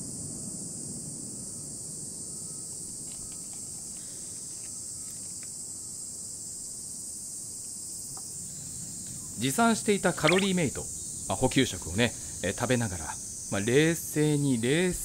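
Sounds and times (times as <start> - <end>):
insects droning: 0.0 - 15.0
faint ticks: 2.9 - 5.6.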